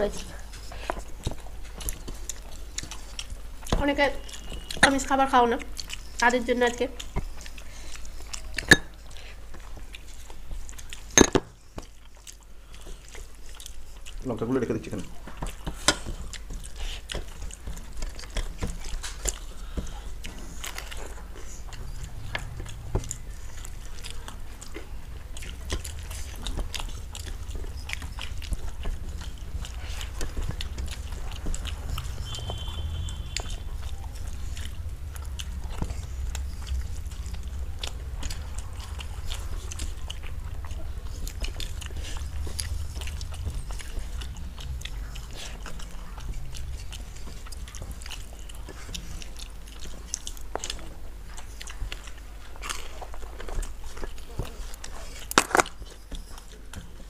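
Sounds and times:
people chewing food: 0.0 - 57.0
steady low hum: 0.0 - 57.0
mouth clicks: 18.1 - 50.7.

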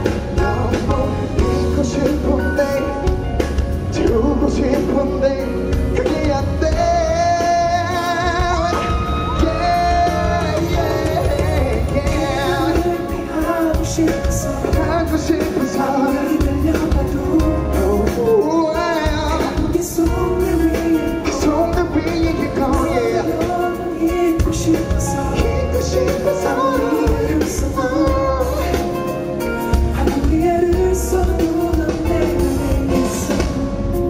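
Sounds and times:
man singing: 0.0 - 34.0.

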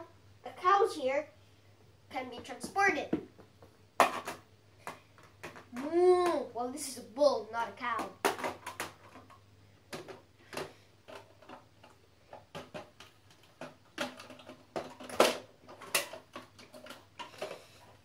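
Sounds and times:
hard plastic toys knocking: 2.3 - 6.4, 8.0 - 17.6.

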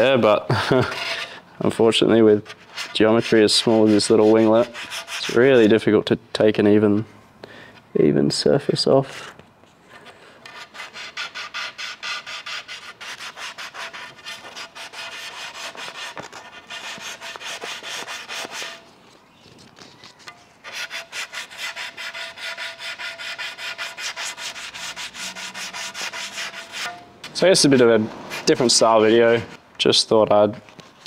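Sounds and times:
sandpaper rubbing back and forth: 2.4 - 5.7, 10.4 - 19.2, 19.8 - 29.6.

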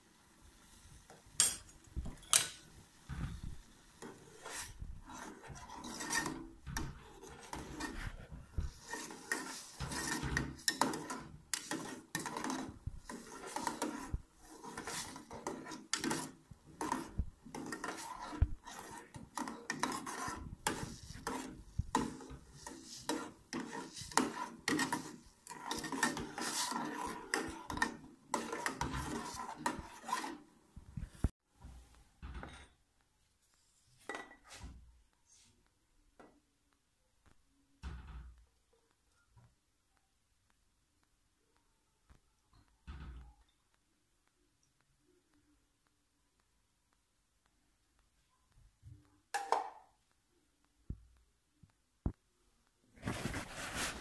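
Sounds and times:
boiling liquid: 0.0 - 31.3
metal ladle scraping a pot: 3.2 - 30.5.

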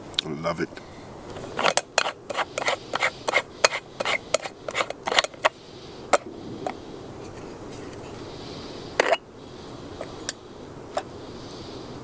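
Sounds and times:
faint steady hiss: 0.0 - 12.0
metal clicks and scrapes: 1.3 - 6.3.

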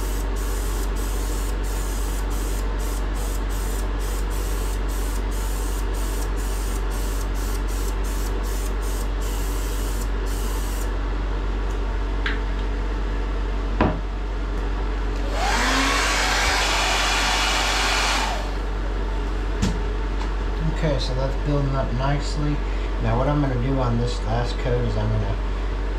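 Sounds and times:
aerosol sprayer hissing: 0.0 - 10.1, 15.3 - 18.7
steady low hum: 0.0 - 25.9.

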